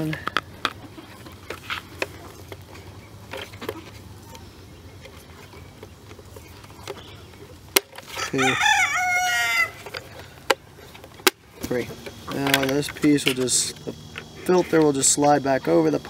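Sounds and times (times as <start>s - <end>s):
rooster crowing: 8.1s - 9.9s.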